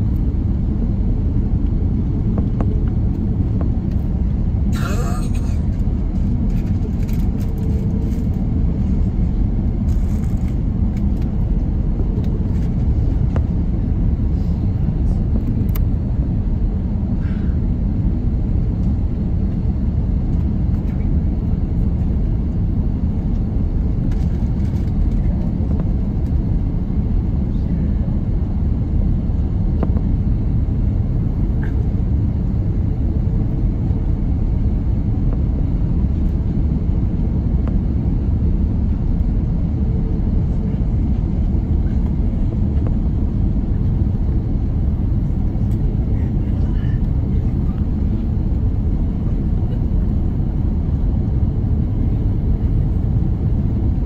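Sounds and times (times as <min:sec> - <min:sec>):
airliner cabin rumble: 0:00.0 - 0:54.0.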